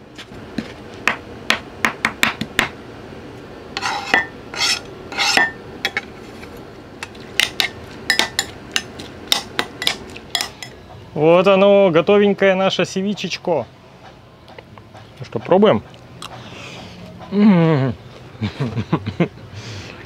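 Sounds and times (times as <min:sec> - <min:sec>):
knife blade scraping: 0:03.8 - 0:06.6.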